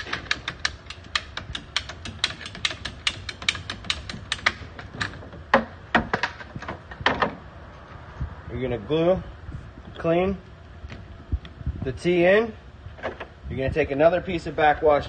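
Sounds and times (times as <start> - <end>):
ratcheting pipe cutter clicking: 0.0 - 5.2.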